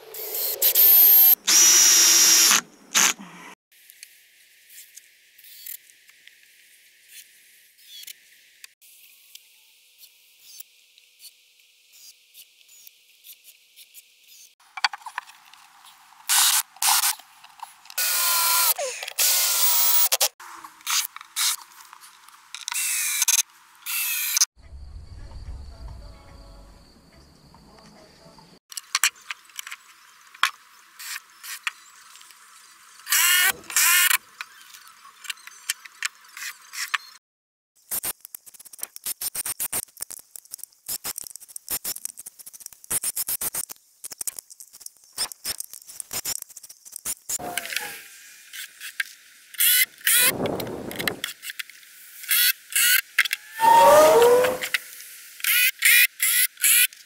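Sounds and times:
power drill whirring: 0:00.4 - 0:03.2, 0:18.0 - 0:20.2.

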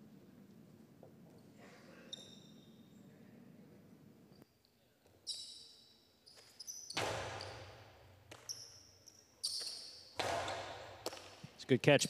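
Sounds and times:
shoes squeaking on court: 0:02.0 - 0:03.0, 0:05.0 - 0:11.5
ball cracking against wall: 0:10.2 - 0:11.4.

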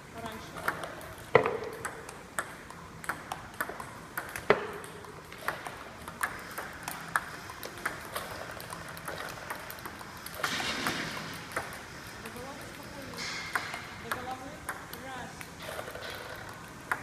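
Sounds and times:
ping-pong ball clicking: 0:00.2 - 0:17.0.

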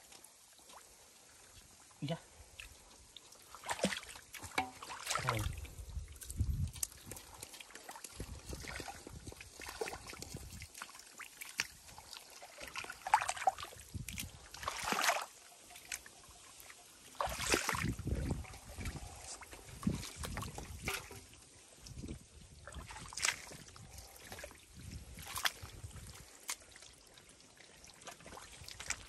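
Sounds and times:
hands splashing in muddy water: 0:03.5 - 0:16.0, 0:17.1 - 0:29.0.

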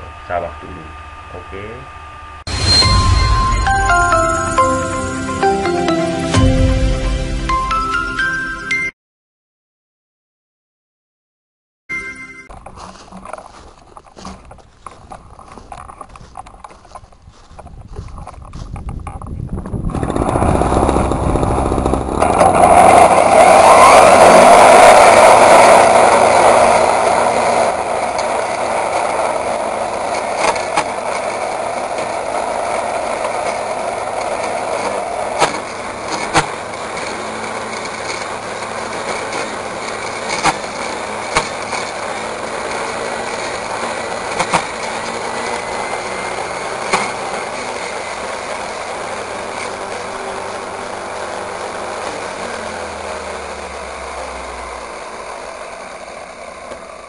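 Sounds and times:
brush cutter cutting grass: 0:12.5 - 0:57.0.

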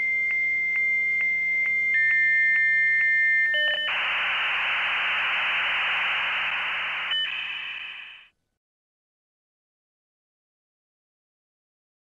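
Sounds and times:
electronic beep tones: 0:03.6 - 0:08.2
loud hissing static: 0:03.9 - 0:08.3.

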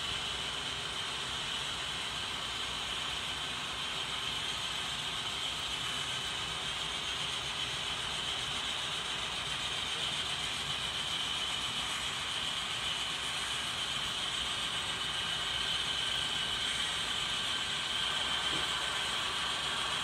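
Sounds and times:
steady high whine: 0:00.0 - 0:20.0
model train wheels clattering: 0:08.9 - 0:20.0.

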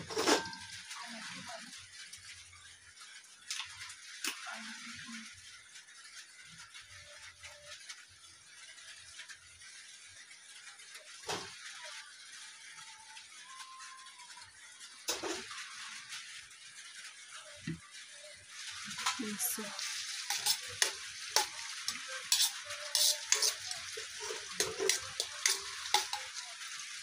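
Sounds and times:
kitchen utensils knocking: 0:20.2 - 0:26.4.

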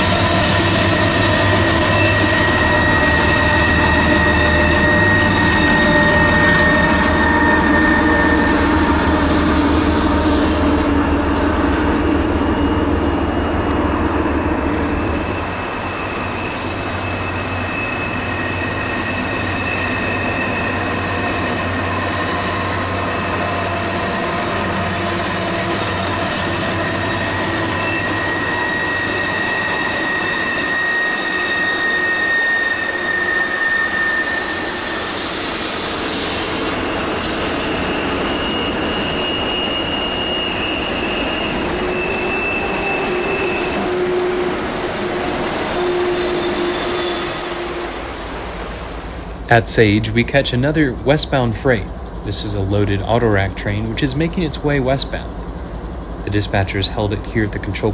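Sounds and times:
model train high-pitched squealing: 0:00.0 - 0:57.9
model train rumbling: 0:00.0 - 0:57.9.

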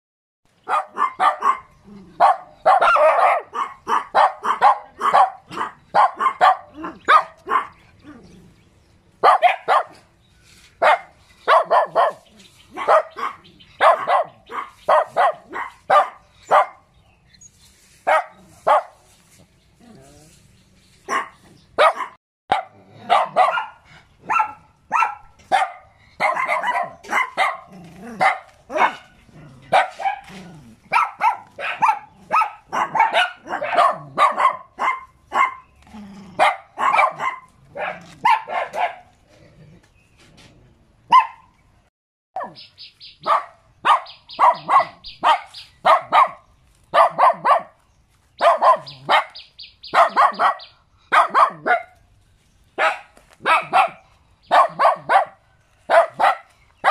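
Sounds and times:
small dogs barking: 0:00.5 - 0:08.6, 0:09.2 - 0:10.2, 0:10.8 - 0:17.0, 0:18.0 - 0:19.2, 0:21.0 - 0:39.2, 0:41.1 - 0:41.5, 0:42.4 - 0:52.0, 0:52.8 - 0:56.9.

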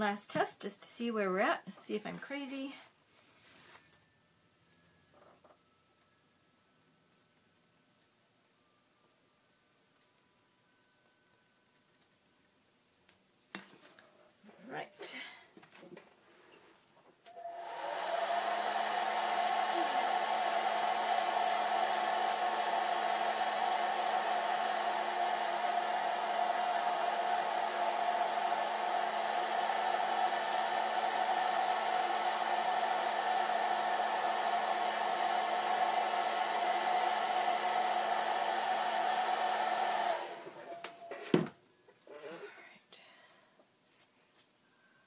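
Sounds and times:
hair dryer whining: 0:17.3 - 0:41.5.

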